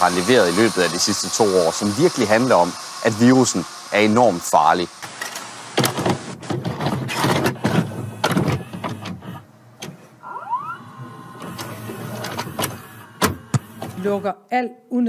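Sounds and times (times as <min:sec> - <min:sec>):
motor whirring: 0:00.0 - 0:06.4, 0:10.2 - 0:14.3
mechanical clunks and clicks: 0:05.0 - 0:10.1, 0:11.0 - 0:14.1.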